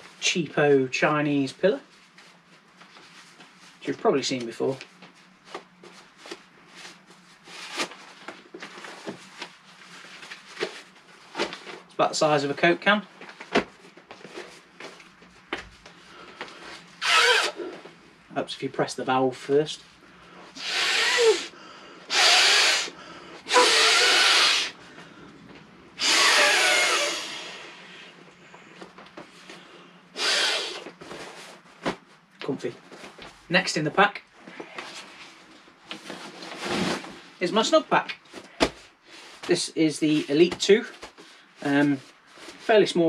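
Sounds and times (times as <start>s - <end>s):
breaths blown through a valve: 22.1s - 24.8s, 26.0s - 27.8s.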